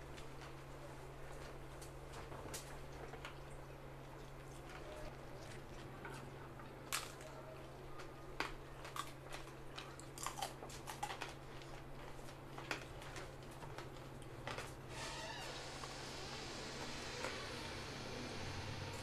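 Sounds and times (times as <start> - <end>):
people chewing and crunching: 0.0 - 14.9
steady low hum: 0.0 - 19.0.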